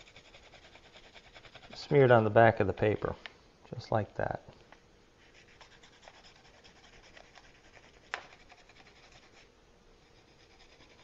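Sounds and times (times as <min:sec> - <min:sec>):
pencil scratching on paper: 0:00.0 - 0:02.0, 0:05.2 - 0:11.0.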